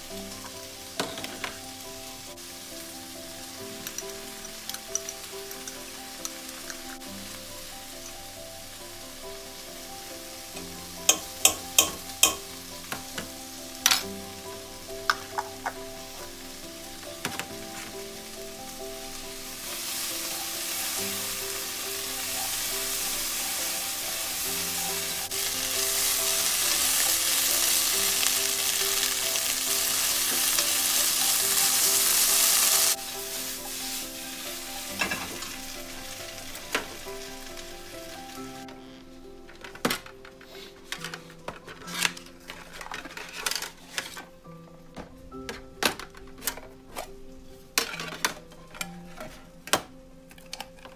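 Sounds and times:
food sizzling in mess tin: 0:00.0 - 0:39.0
background music: 0:00.0 - 0:50.9.

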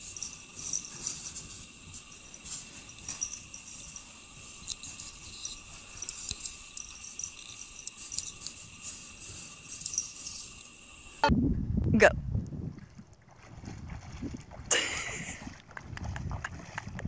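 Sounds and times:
cat claws scraping snow: 0:00.0 - 0:06.5, 0:07.1 - 0:10.6
steady high-pitched whine: 0:00.0 - 0:11.3.

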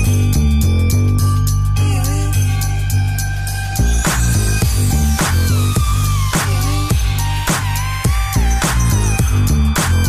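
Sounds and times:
electronic music with heavy bass: 0:00.0 - 0:10.0
drum beat: 0:04.1 - 0:10.0.

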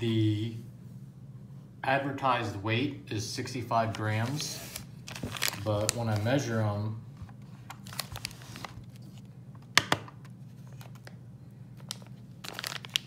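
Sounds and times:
steady low hum: 0:00.0 - 0:13.0
plastic bags rustling: 0:04.0 - 0:06.5, 0:07.7 - 0:09.2, 0:11.8 - 0:13.0.

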